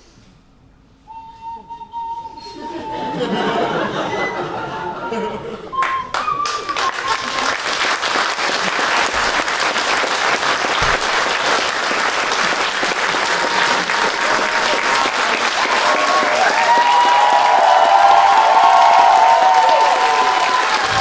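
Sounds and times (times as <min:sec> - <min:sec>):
audience applauding: 0:05.8 - 0:21.0.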